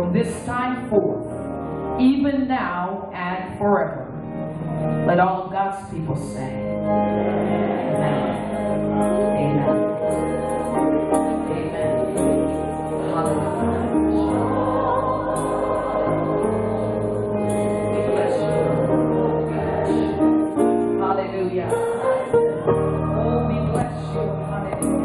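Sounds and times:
long held instrumental chords: 0:00.0 - 0:02.8, 0:03.5 - 0:25.0
choir singing gospel: 0:06.1 - 0:25.0.

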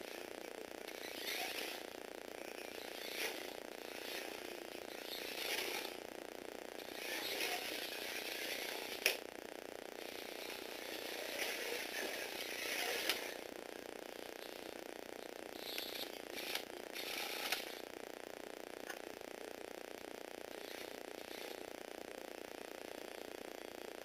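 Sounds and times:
small motor and gears whirring: 0:00.0 - 0:06.0, 0:06.8 - 0:09.2, 0:10.0 - 0:13.5, 0:14.4 - 0:17.9, 0:20.5 - 0:21.8.

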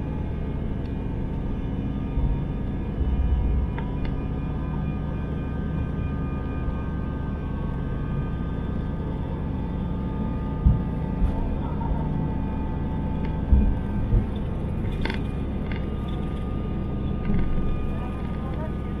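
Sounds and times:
faint whining tones: 0:00.0 - 0:19.0
jet engines and gear rumbling: 0:00.0 - 0:19.0
low bumps: 0:10.6 - 0:11.7, 0:13.2 - 0:16.4.

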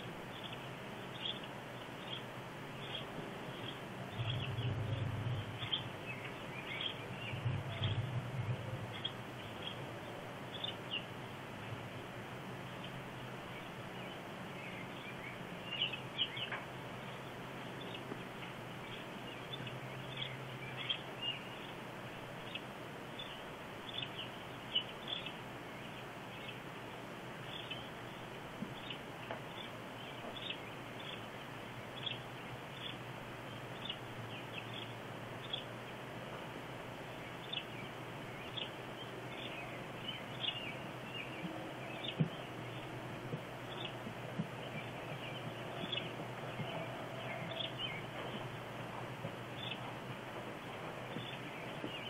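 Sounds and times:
bird chirps: 0:00.0 - 0:11.2, 0:12.6 - 0:18.2, 0:18.8 - 0:26.6, 0:27.4 - 0:35.7, 0:37.1 - 0:52.0
steady background hiss: 0:00.0 - 0:52.0
low rumble: 0:02.8 - 0:12.8.

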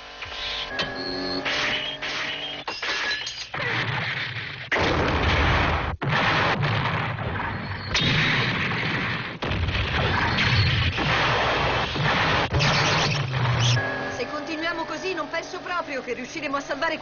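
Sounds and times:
cartoon cannon blasts: 0:01.5 - 0:13.8.

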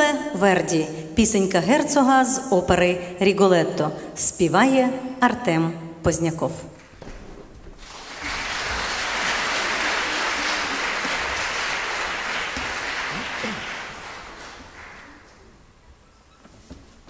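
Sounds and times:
audience applauding: 0:07.8 - 0:15.5.

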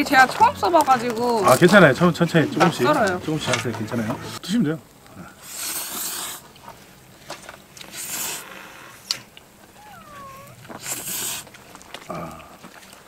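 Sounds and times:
short squeaky sound: 0:09.8 - 0:10.6
child slurping noodles: 0:09.8 - 0:11.5.

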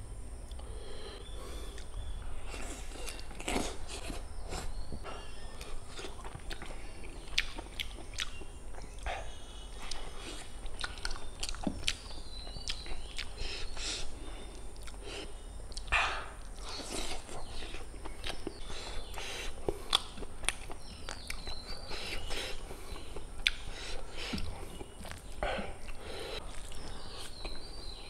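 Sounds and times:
person biting and chewing meat: 0:15.7 - 0:27.6.

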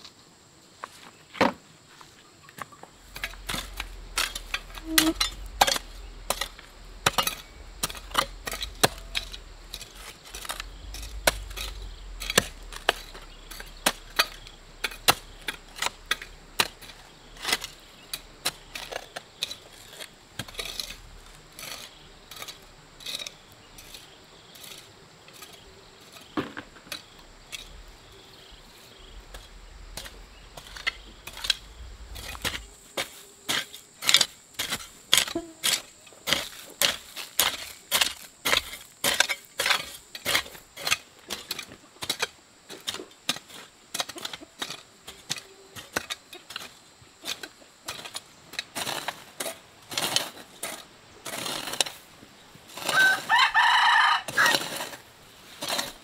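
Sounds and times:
hoe chopping and scraping soil: 0:02.9 - 0:56.0
stones knocking together: 0:26.3 - 0:27.8.

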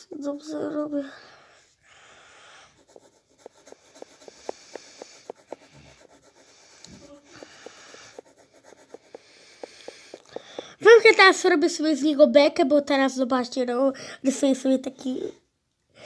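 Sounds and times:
pencil scratching on paper: 0:02.0 - 0:11.9.

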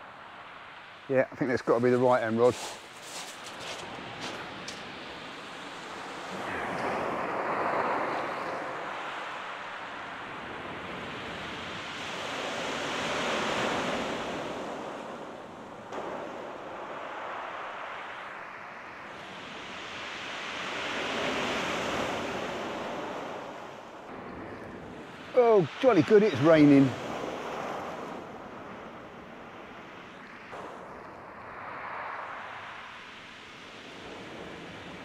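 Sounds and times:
sea waves breaking on shingle: 0:02.4 - 0:09.5.

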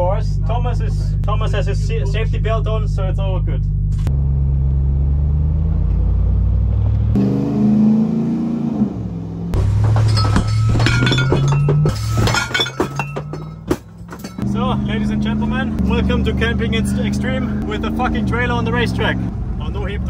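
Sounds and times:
road drone: 0:00.0 - 0:20.0
truck engine rumbling: 0:00.0 - 0:20.0
dishes and glasses rattling: 0:09.8 - 0:14.4.

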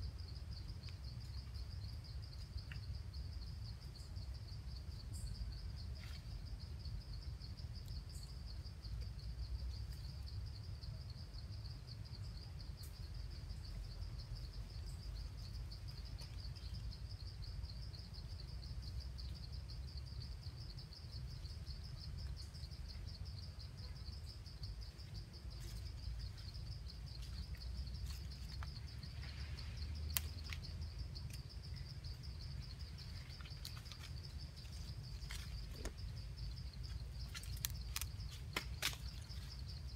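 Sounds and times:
high-pitched insect trill: 0:00.0 - 0:39.9.

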